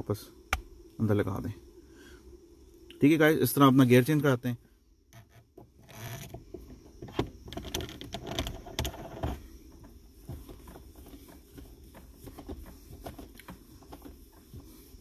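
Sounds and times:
gear knob clicking and scraping: 5.1s - 6.4s, 7.0s - 9.4s.

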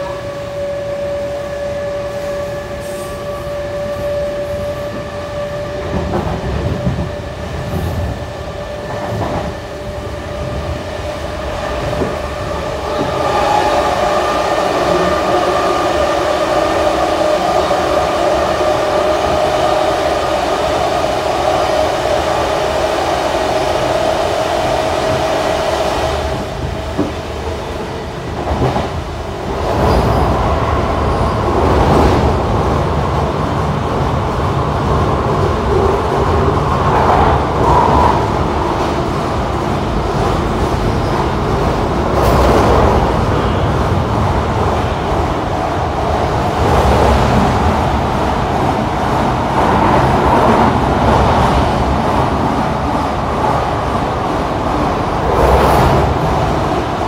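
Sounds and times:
electric train hum: 0.0s - 57.0s.

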